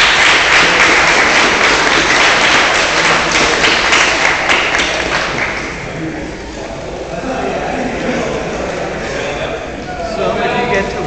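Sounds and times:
spectators applauding: 0.0s - 5.9s.

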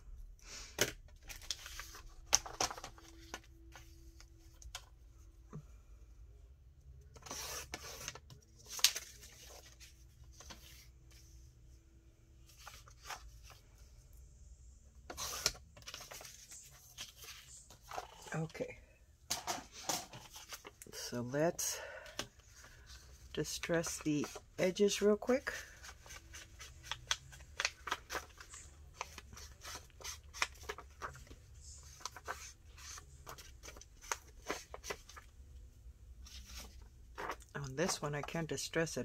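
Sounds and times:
paper rustling: 7.2s - 11.3s, 15.1s - 18.5s, 19.3s - 20.8s, 22.4s - 35.3s, 36.2s - 38.0s.

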